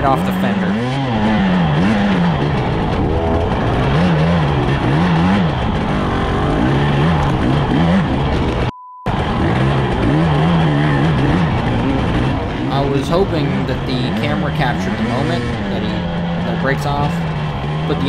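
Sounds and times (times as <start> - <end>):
dirt bike engine revving: 0.0 - 18.0
short steady beep: 8.7 - 9.1.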